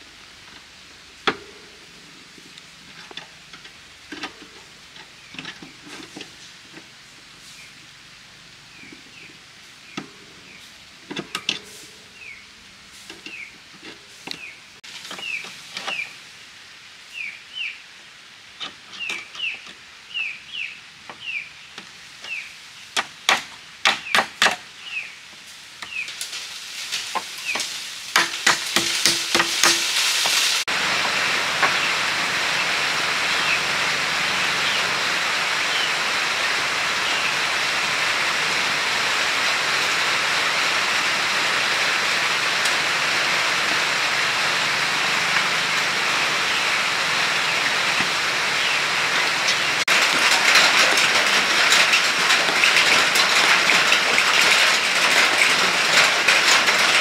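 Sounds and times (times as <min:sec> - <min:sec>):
falling water hiss: 0:00.0 - 0:57.0
sharp knocks: 0:28.2 - 0:29.9.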